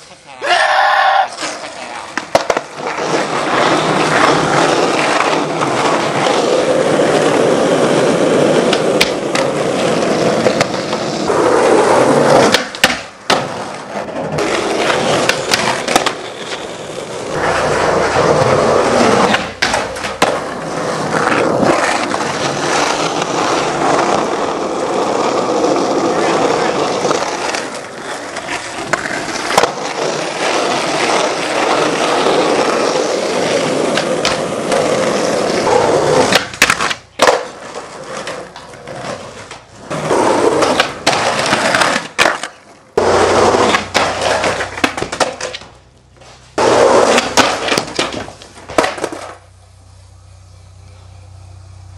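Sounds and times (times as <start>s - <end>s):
skateboard wheels rolling on concrete: 0.0s - 51.9s
skateboard clacks: 1.3s - 49.5s
low hum: 49.4s - 51.9s.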